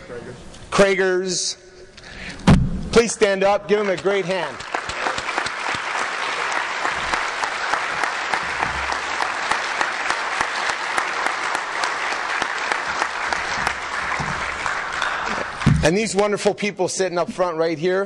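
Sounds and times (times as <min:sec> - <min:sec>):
audience applauding: 0:03.8 - 0:16.1.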